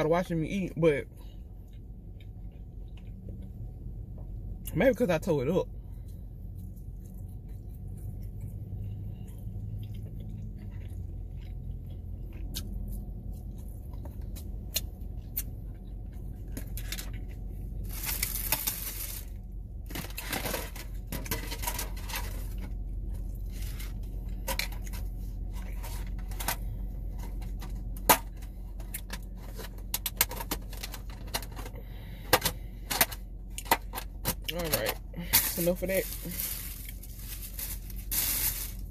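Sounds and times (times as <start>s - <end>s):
steady low hum: 0.0s - 38.9s
chewing: 6.0s - 17.5s
rustling: 35.3s - 38.9s.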